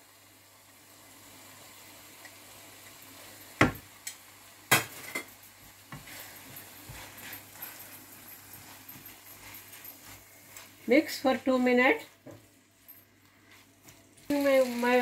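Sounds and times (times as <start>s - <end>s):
low sizzle: 0.0s - 15.0s
sharp knocks on pan: 3.6s - 3.8s.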